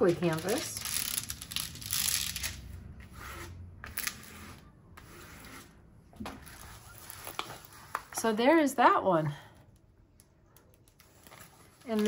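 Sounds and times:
plastic scraper rubbing plastic sheet: 0.2s - 5.8s.

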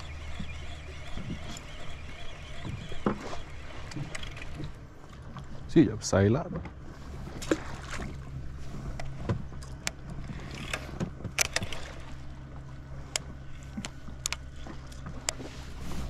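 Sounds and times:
fishing reel clicks and taps: 0.0s - 4.5s.

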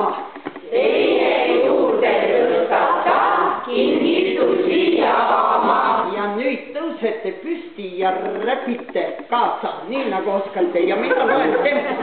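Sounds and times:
group of people singing: 0.0s - 6.2s.

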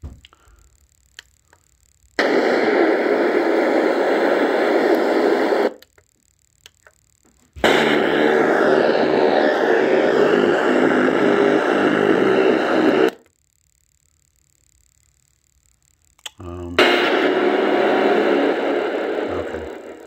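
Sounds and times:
radio static hiss: 0.4s - 20.0s.

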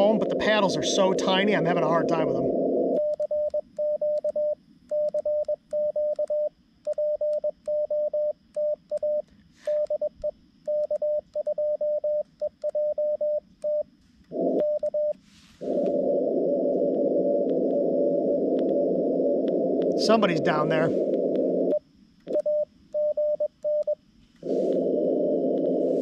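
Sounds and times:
radio band noise hiss: 0.0s - 3.0s, 15.2s - 21.8s, 24.4s - 26.0s.

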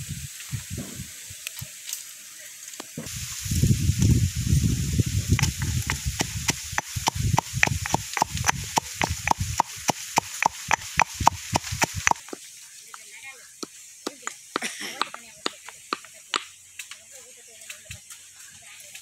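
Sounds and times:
meat frying with oil popping: 0.0s - 17.1s.

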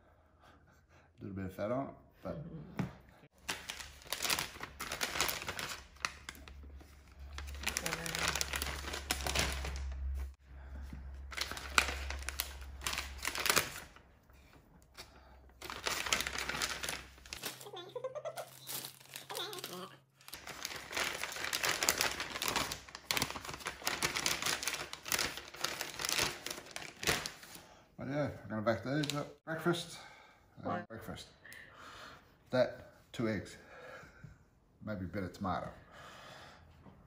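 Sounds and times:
plastic bag crinkling: 3.4s - 10.4s, 11.2s - 14.0s, 15.6s - 27.6s.

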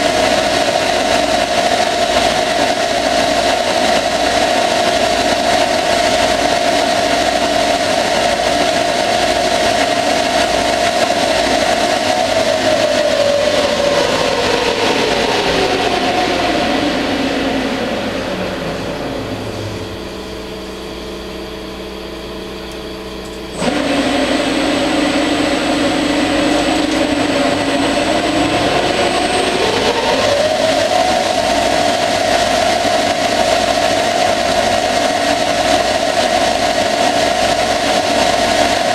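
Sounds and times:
lathe motor whine: 0.0s - 38.9s.

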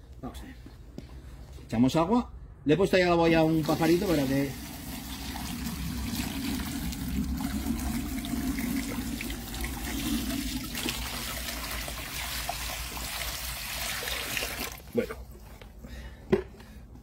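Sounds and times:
water pouring and splashing: 3.4s - 15.6s.

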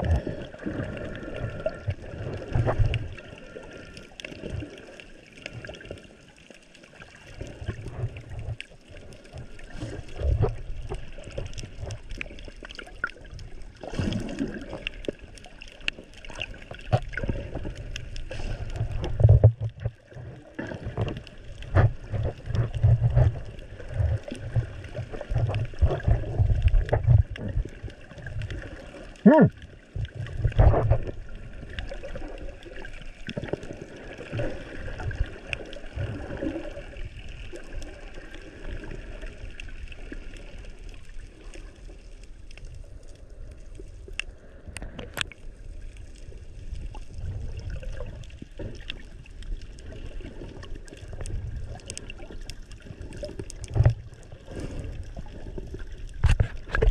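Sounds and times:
muffled underwater water sloshing: 0.0s - 56.9s
small knocks and clicks: 56.2s - 56.9s.

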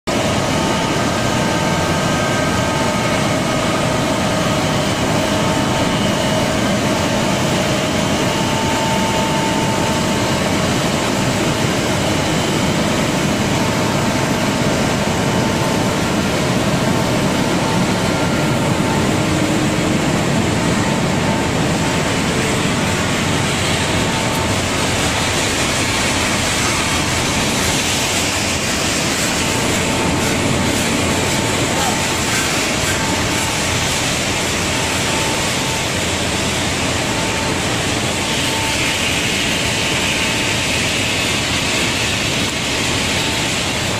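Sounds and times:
loud machinery din: 16.0s - 43.9s.

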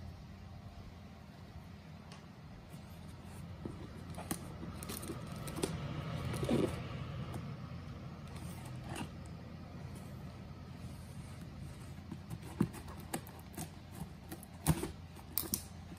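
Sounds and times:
steady low hum: 0.0s - 15.9s
fingers tapping and scraping cardboard box: 12.0s - 15.6s.

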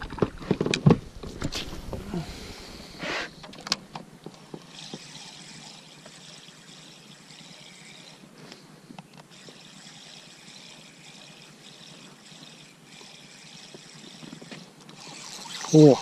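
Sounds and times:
water lapping at boat: 9.3s - 16.0s.

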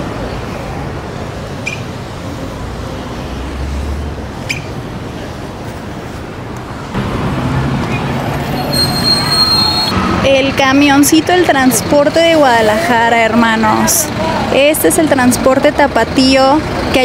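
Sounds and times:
bus engine hum: 0.0s - 17.0s
passing vehicles: 0.0s - 17.0s.

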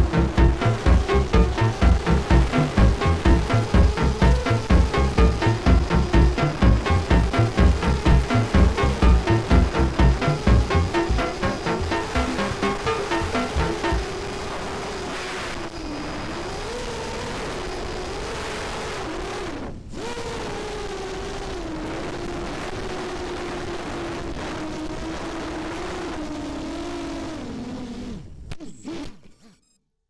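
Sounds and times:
drone motors whining: 0.0s - 14.2s.

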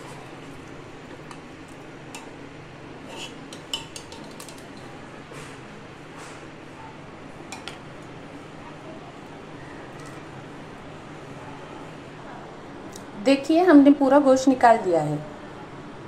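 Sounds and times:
metal ladle scraping in pot: 3.0s - 3.6s.

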